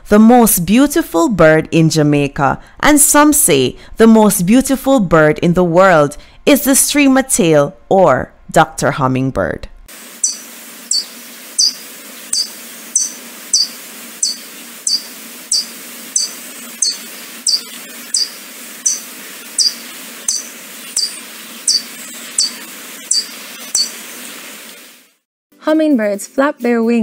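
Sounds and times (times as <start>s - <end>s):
hummingbird chip notes: 10.1s - 24.0s.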